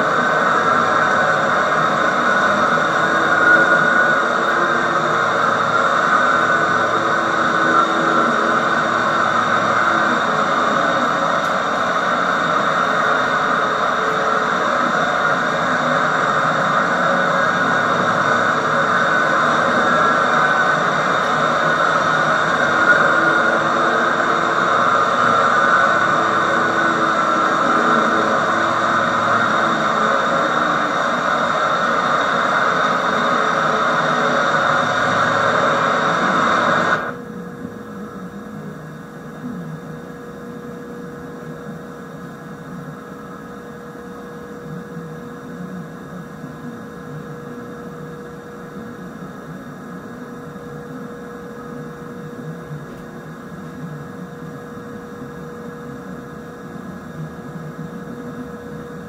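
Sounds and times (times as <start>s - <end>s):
loud rushing noise: 0.0s - 37.2s
quiet hum with held tone: 0.0s - 59.0s.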